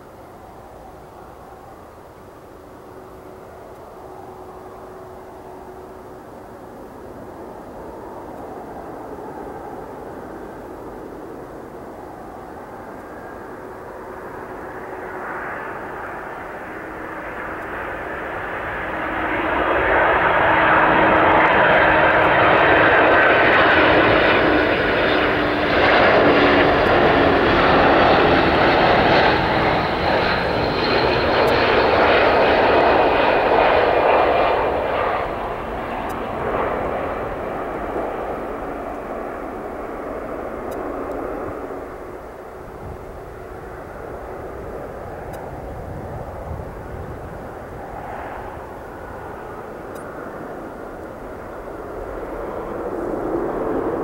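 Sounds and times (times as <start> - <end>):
jet engines passing overhead: 0.0 - 54.0.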